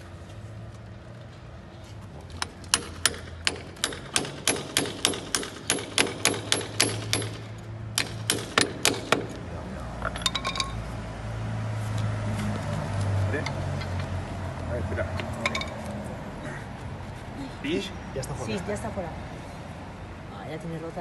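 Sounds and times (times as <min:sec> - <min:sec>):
hammer striking steel chisel: 0:02.4 - 0:09.4.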